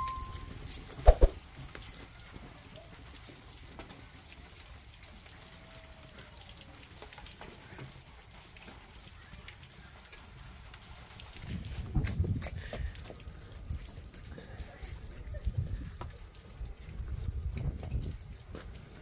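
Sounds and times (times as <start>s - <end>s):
metal ringing: 0.0s - 0.5s.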